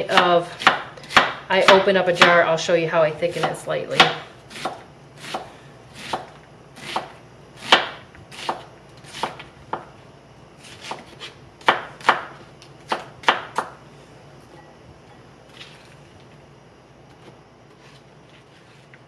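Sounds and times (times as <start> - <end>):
knife chopping on cutting board: 0.1 - 2.4, 3.3 - 9.9, 10.6 - 13.7.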